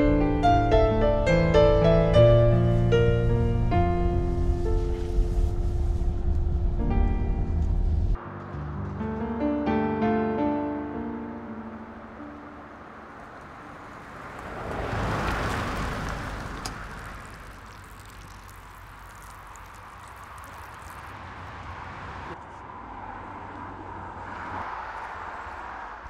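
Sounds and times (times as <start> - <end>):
car passing: 0.8 - 26.0
low outdoor background noise: 11.1 - 26.0.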